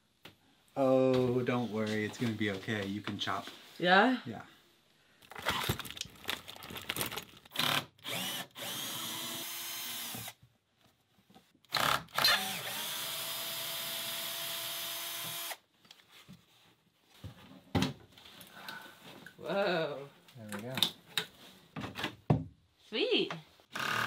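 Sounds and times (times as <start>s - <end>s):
cordless drill motor running: 7.5s - 10.4s, 11.7s - 15.6s, 23.7s - 24.0s.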